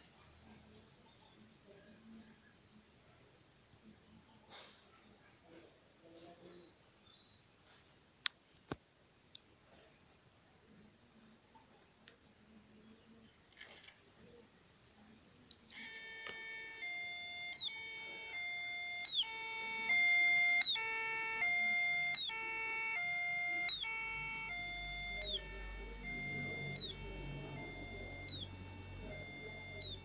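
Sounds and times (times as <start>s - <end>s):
two-tone electronic siren: 15.8s - 30.0s.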